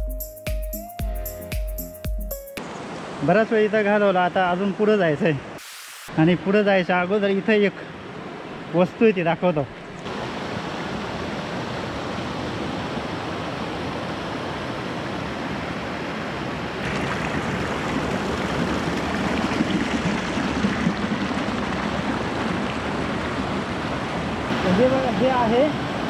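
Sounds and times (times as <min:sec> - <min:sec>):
river rushing over rocks: 0:10.0 - 0:26.0.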